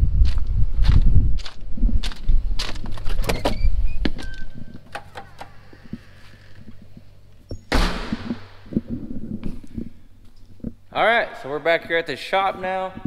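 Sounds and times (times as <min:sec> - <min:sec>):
door latch clicking: 0:04.3 - 0:05.6.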